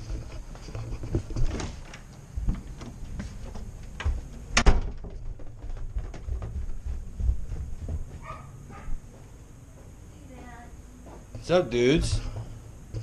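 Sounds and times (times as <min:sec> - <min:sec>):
footsteps: 0:00.0 - 0:13.0.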